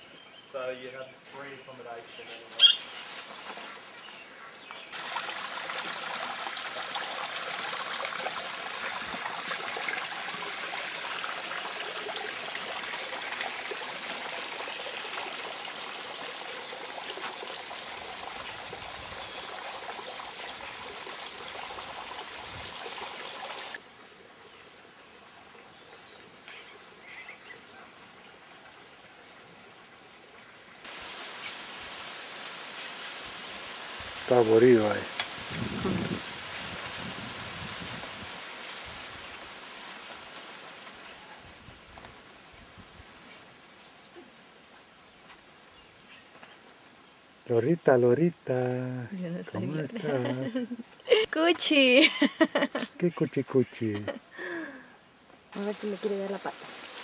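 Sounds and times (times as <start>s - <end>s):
faint high bird chirps: 2.6s - 3.0s, 55.6s - 57.0s
running water rushing: 4.9s - 26.4s, 28.3s - 41.6s, 55.5s - 57.0s.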